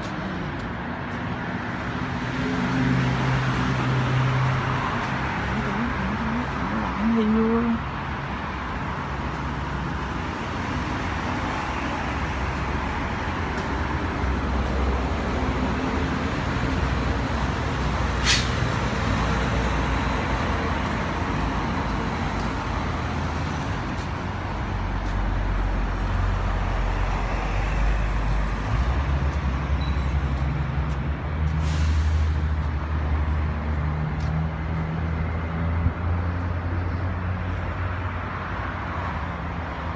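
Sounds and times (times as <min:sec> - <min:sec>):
heavy vehicles passing: 0:00.0 - 0:39.9
short sharp hiss: 0:18.2 - 0:18.6.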